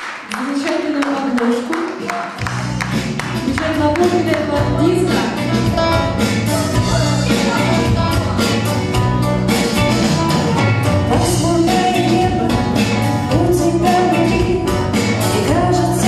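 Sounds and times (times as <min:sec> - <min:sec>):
keyboard: 0:02.4 - 0:16.0
steady drum beat: 0:02.4 - 0:16.0
women singing: 0:11.1 - 0:16.0.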